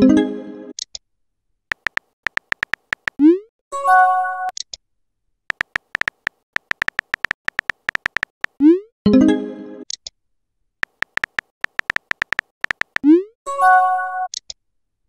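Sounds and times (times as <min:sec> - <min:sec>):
keyboard tap clicks: 0:01.7 - 0:03.2, 0:05.5 - 0:08.6, 0:10.8 - 0:13.1.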